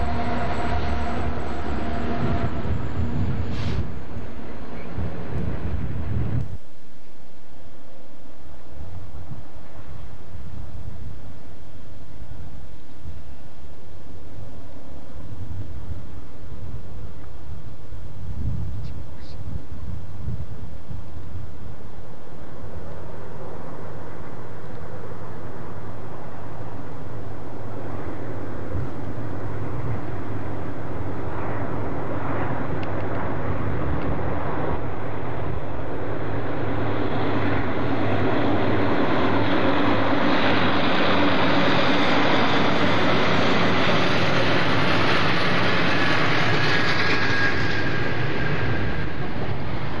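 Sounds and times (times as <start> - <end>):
high squeal: 0.0 - 4.0, 45.4 - 50.0
diesel locomotive engines: 0.0 - 50.0.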